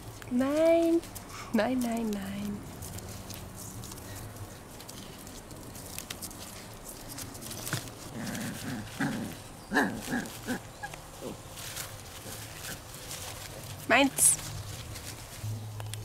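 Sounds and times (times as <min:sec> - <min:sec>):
cord rustling and clicking: 0:00.0 - 0:09.4
small dog growling: 0:08.1 - 0:11.4.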